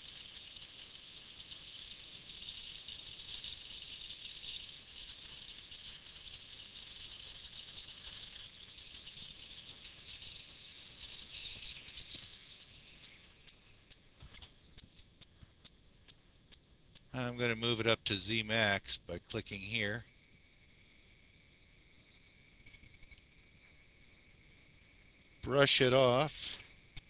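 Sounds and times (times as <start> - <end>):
mill cutter high-pitched hiss: 25.0 - 27.0.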